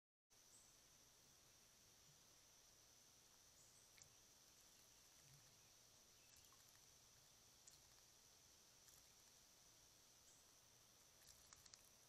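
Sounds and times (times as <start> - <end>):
faint insects drone: 0.3 - 12.0
faint clicks: 7.6 - 8.1, 11.0 - 12.0.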